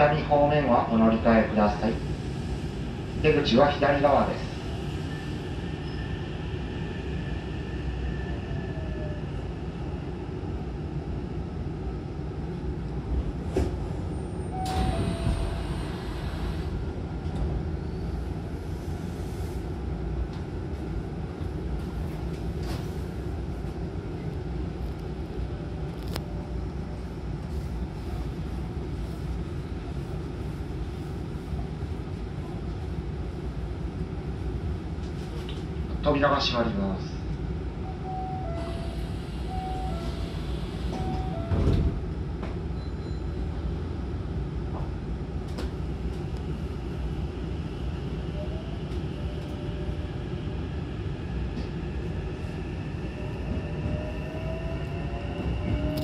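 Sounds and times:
train low rumble: 0.0 - 56.0
train doors sliding open: 13.1 - 19.6, 22.1 - 23.2, 38.5 - 43.4.

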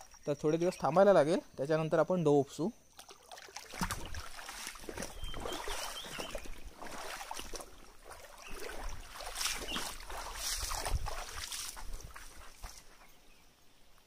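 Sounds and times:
splashing in a shallow stream: 2.9 - 13.0.

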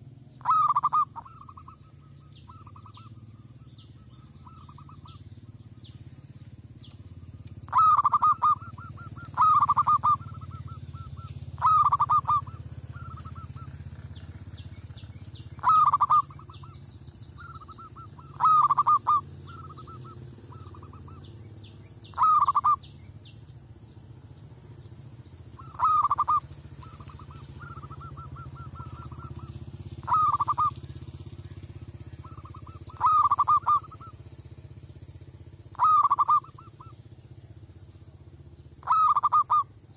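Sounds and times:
small birds chirping: 0.0 - 39.9
dove cooing: 0.4 - 5.3, 7.2 - 14.6, 15.6 - 21.3, 22.1 - 22.9, 25.5 - 34.3, 35.7 - 37.0, 38.8 - 39.8.

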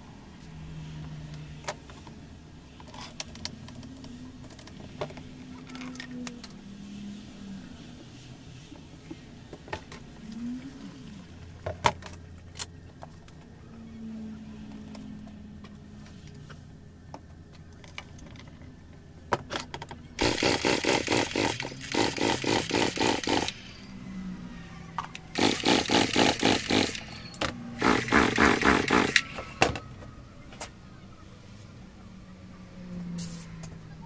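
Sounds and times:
scattered clicks and knocks: 17.1 - 23.9, 25.0 - 30.0
rapid mechanical clatter: 19.5 - 24.0, 25.1 - 29.6.

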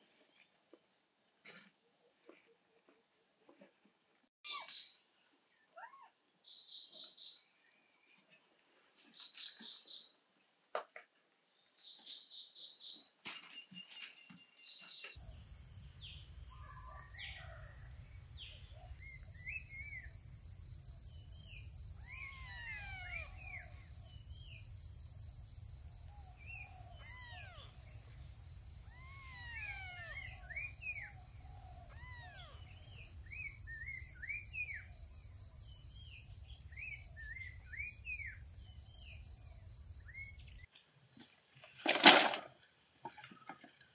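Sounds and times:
high insect drone: 0.0 - 43.9
short chirping calls: 4.4 - 5.0, 5.6 - 7.5, 21.4 - 24.6, 26.4 - 28.0, 28.8 - 34.9.

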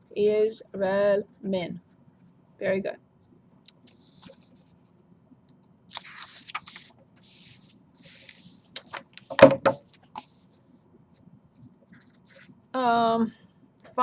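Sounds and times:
paper sliding and rustling: 3.8 - 4.7, 5.9 - 9.3
taps and knock on desk: 9.3 - 9.9.

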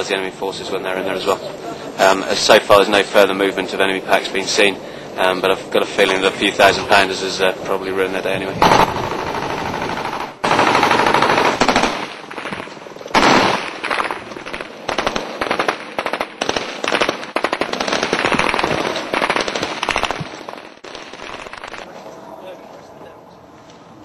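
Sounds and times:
automatic gunfire bursts: 8.6 - 21.8.

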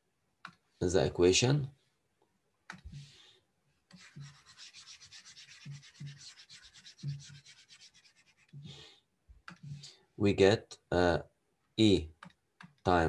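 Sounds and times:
stylus scrubbing on pen tablet: 3.9 - 8.8.

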